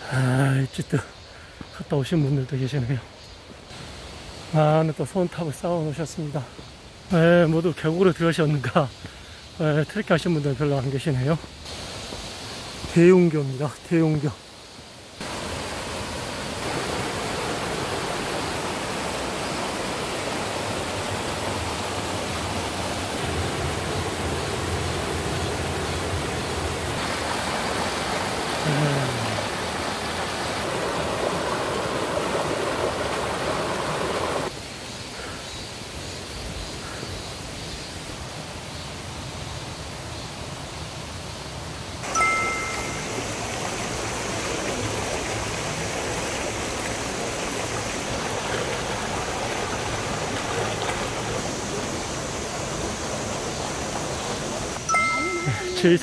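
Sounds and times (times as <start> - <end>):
stream rushing over boulders: 1.6 - 34.6, 38.1 - 56.0.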